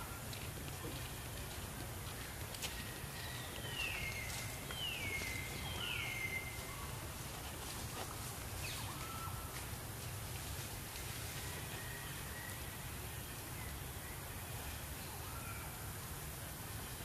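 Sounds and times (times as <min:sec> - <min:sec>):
rustling leaves and snapping branches: 0:00.3 - 0:12.7.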